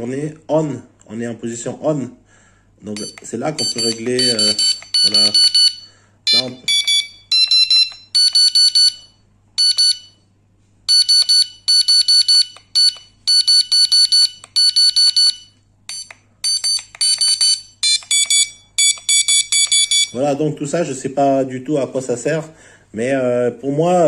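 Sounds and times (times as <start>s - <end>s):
bite alarm short high beeps: 3.0s - 9.0s.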